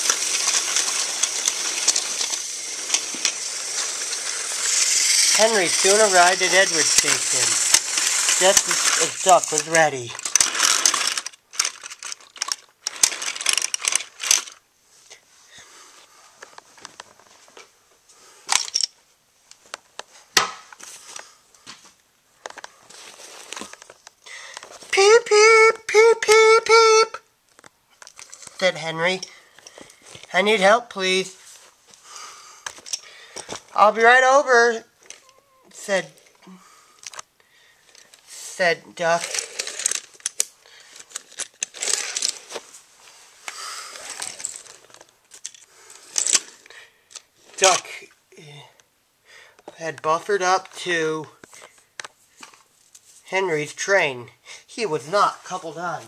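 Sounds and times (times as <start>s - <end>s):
plastic rustling: 0.0s - 14.6s, 39.0s - 46.7s
plastic toy trains clicking: 0.0s - 14.6s, 23.5s - 30.4s, 37.9s - 42.6s, 43.5s - 48.0s.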